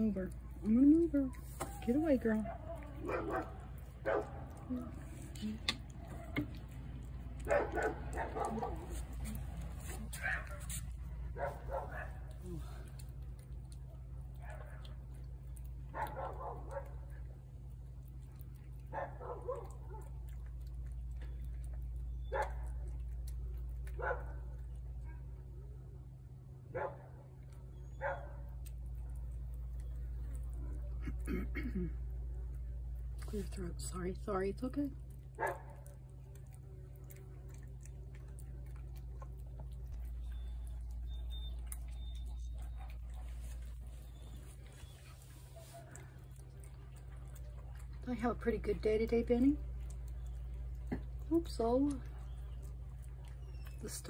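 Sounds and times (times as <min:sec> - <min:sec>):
cat chewing food: 0:00.0 - 0:54.0
steady low hum: 0:00.0 - 0:54.0
dog barking and yipping: 0:02.4 - 0:04.5, 0:07.4 - 0:09.1, 0:10.1 - 0:10.8, 0:11.4 - 0:12.3, 0:15.9 - 0:17.1, 0:18.8 - 0:20.1, 0:22.2 - 0:22.9, 0:24.0 - 0:24.4, 0:27.8 - 0:28.5, 0:35.4 - 0:35.9.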